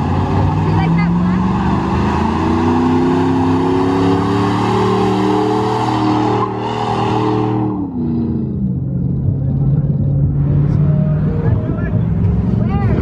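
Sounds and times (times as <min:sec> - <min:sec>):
engine revving high: 0:00.0 - 0:08.8.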